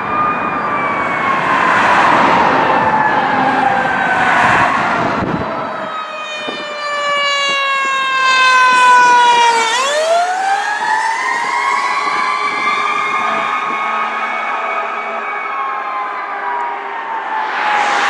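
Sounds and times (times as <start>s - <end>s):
fire truck siren wailing: 0.0s - 18.0s.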